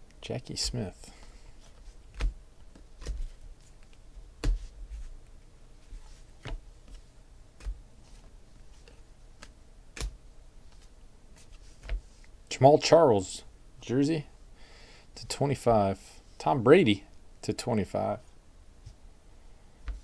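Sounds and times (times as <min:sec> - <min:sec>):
cards clicking and snapping: 0:09.4 - 0:10.2.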